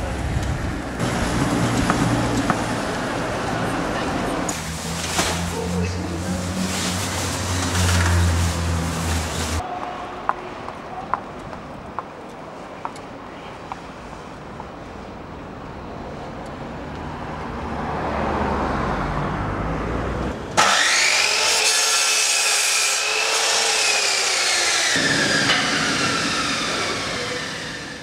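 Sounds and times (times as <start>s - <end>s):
mitre saw cutting wood: 20.6s - 28.0s.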